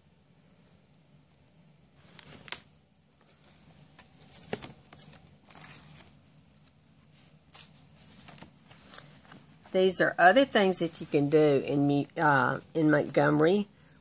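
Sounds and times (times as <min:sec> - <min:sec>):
card pages rustling and flapping: 0:02.0 - 0:09.8.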